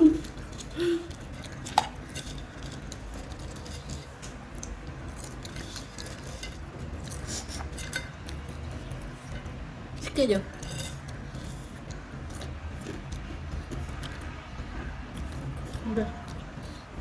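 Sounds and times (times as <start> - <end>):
crisps being chewed: 10.7 - 16.8.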